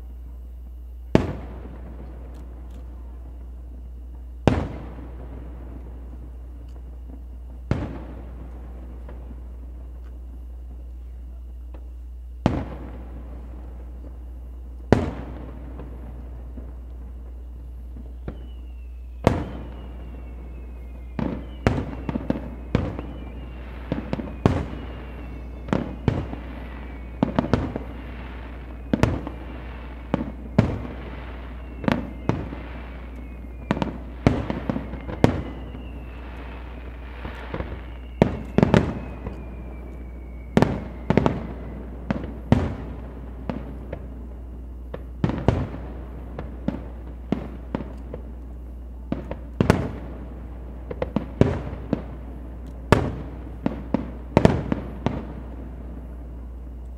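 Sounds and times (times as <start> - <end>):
fireworks bursting: 0.0 - 56.9
steady low hum: 0.0 - 56.9
falling high whistle: 3.0 - 43.2.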